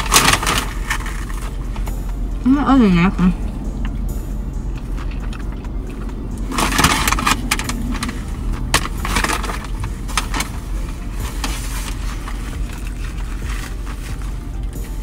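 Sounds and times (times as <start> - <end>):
paper wrapper crinkling: 0.0 - 1.8, 6.4 - 14.5
steady low hum: 0.0 - 15.0.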